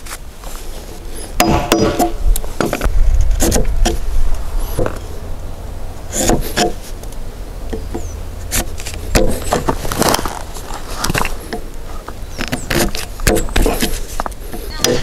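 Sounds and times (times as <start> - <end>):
chisel cracking and scraping wood: 1.4 - 4.1, 6.1 - 15.0.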